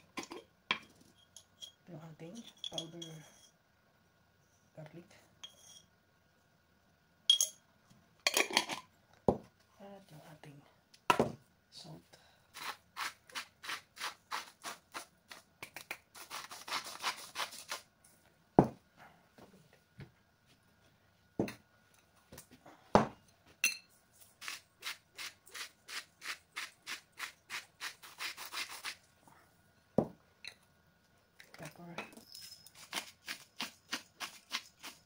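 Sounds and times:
spice grinder grinding salt: 12.5 - 17.9, 24.2 - 29.1, 32.3 - 35.0.

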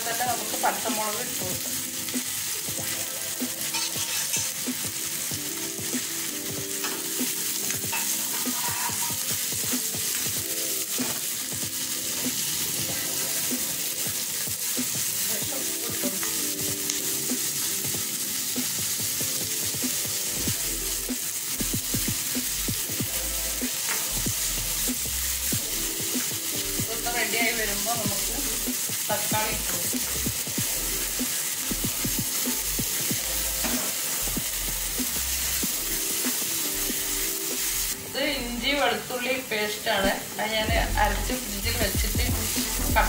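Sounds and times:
onions sizzling in hot oil: 0.0 - 43.0
metal spatula scraping a pan: 3.6 - 4.6, 6.8 - 9.5.

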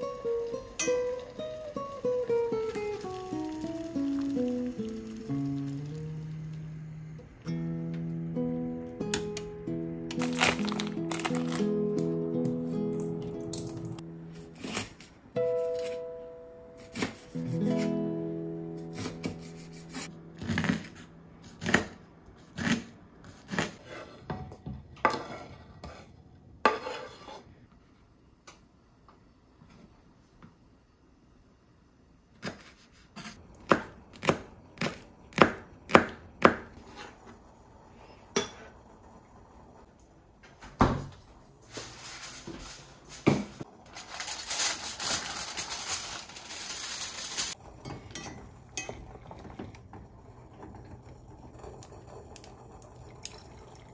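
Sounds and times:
steady hiss: 0.0 - 10.1.

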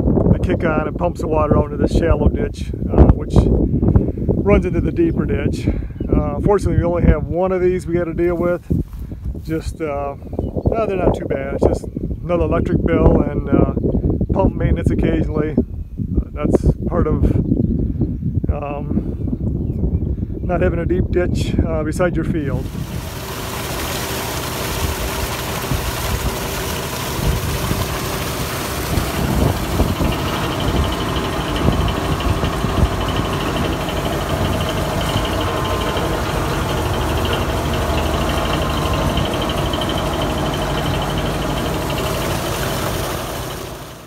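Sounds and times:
electric motor running: 22.6 - 44.0
water gushing and splashing: 22.6 - 44.0.

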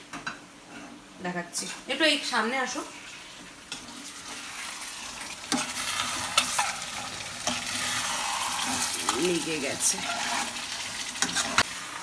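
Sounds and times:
curry sizzling in a pan: 0.0 - 12.0.

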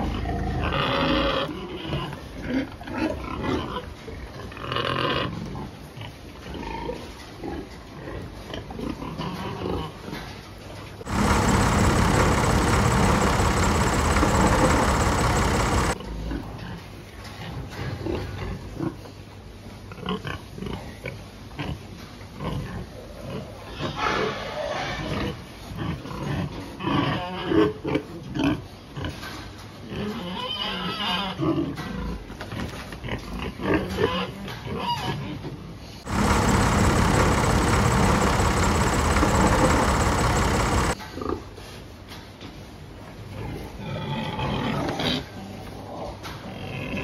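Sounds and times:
pigs grunting and squealing: 0.0 - 3.9, 26.8 - 28.7, 43.6 - 47.0
machine engine inside cab: 11.1 - 16.0, 36.1 - 41.0.

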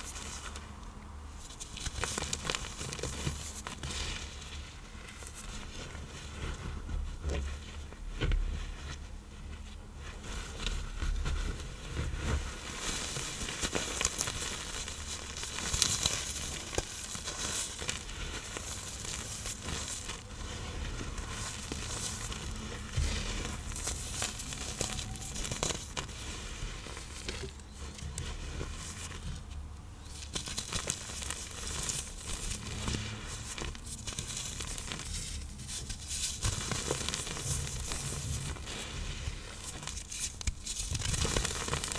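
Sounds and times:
powder blocks crumbling and crackling: 12.4 - 29.2, 30.0 - 41.9.

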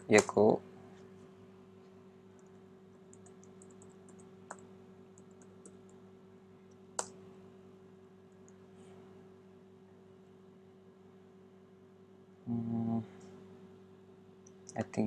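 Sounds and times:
faint hum: 0.0 - 15.0
keyboard typing: 3.1 - 6.0.

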